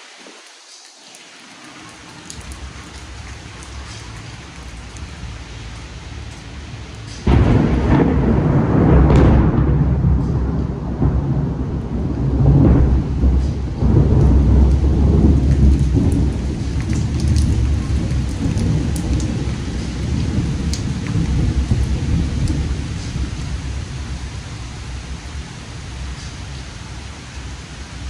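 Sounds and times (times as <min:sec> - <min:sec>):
steady rain: 0:00.0 - 0:28.0
sharp raindrop ticks: 0:00.4 - 0:08.3, 0:11.8 - 0:23.9
thunder rumbling: 0:01.7 - 0:28.0.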